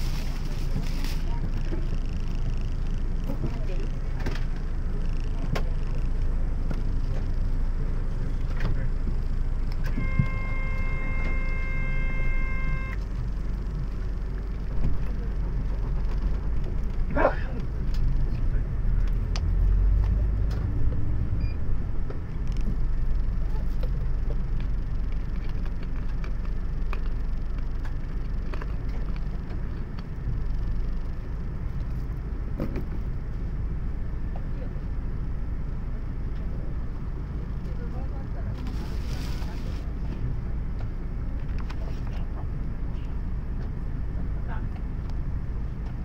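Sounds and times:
diesel bus engine: 0.0s - 46.0s
steady electronic tone: 9.8s - 13.8s.

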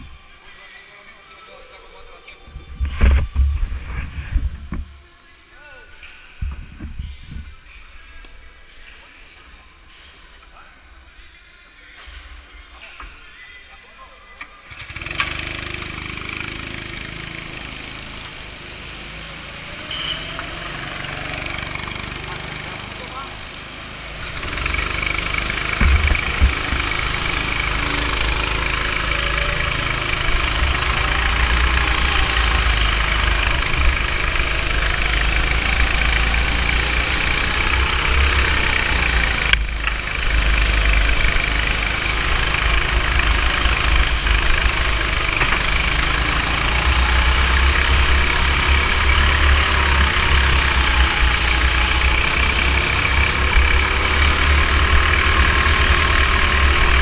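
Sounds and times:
go-kart engine revving: 14.6s - 57.0s
heavy low rumble: 25.7s - 33.0s.

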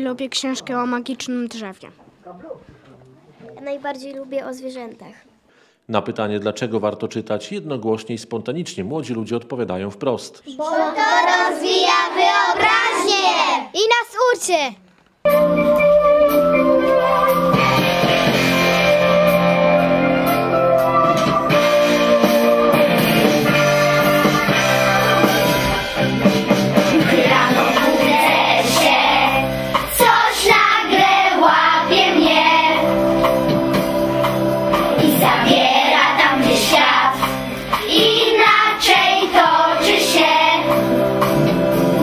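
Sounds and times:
children singing: 10.6s - 13.7s, 23.4s - 26.0s, 26.7s - 33.8s, 34.7s - 41.0s
instrumental backing music: 15.2s - 42.0s.

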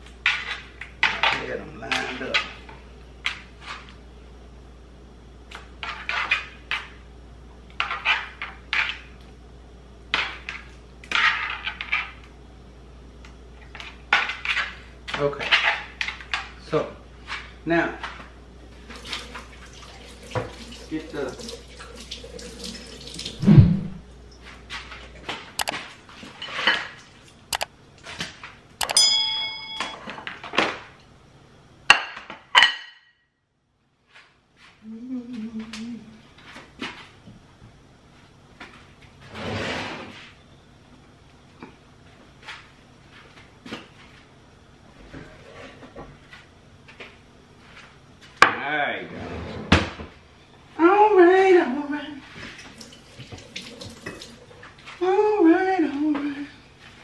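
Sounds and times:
faint steady hum: 0.0s - 57.0s
sharp clinks: 28.8s - 30.0s
ringing clink of dishes: 28.8s - 30.2s.

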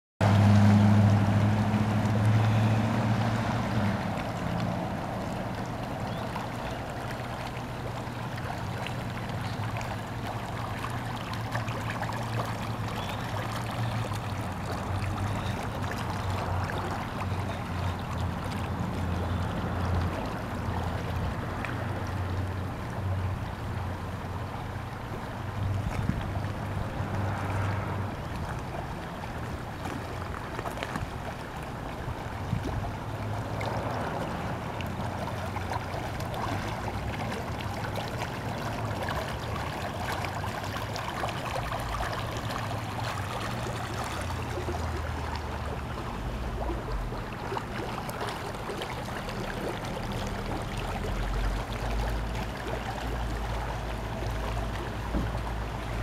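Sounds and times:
floodwater rushing across street: 0.2s - 56.0s
wind on microphone: 25.6s - 28.2s.

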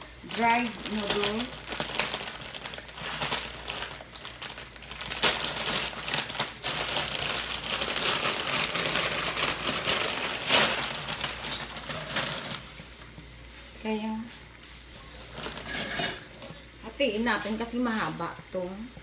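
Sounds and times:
plastic packet crinkling: 0.0s - 13.1s, 15.3s - 15.9s.

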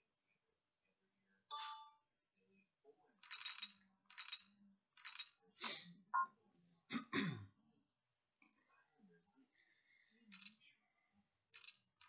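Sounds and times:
poker chips clinking: 3.2s - 4.4s.

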